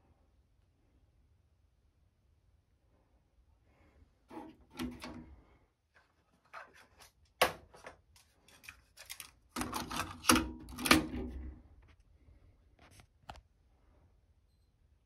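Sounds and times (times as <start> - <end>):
plastic clicks and clatter: 6.4 - 11.5.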